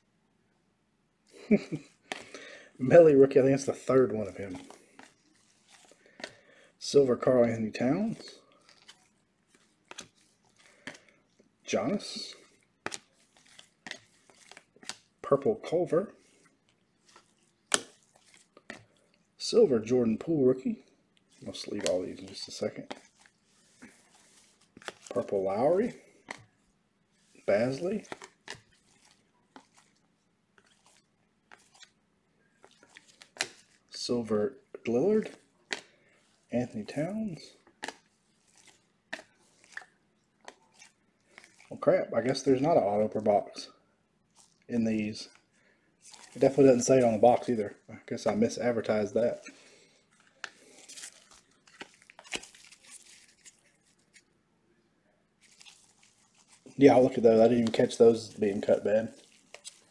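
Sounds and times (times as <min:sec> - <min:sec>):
packaging rustling and crinkling: 0:01.4 - 0:15.2, 0:16.2 - 0:34.1, 0:35.0 - 0:43.2, 0:44.3 - 0:54.4, 0:55.4 - 0:59.9
trading cards clicking and sliding: 0:21.3 - 0:26.5.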